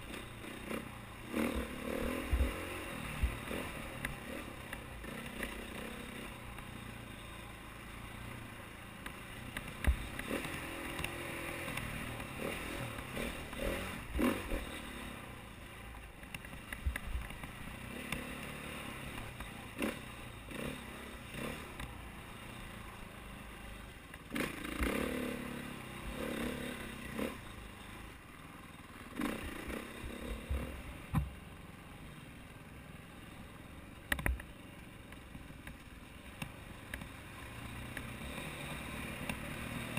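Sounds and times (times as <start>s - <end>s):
dirt bike engine revving: 0.0s - 8.1s, 9.2s - 15.3s, 17.7s - 22.6s, 24.3s - 27.9s, 29.1s - 31.0s, 38.1s - 39.9s.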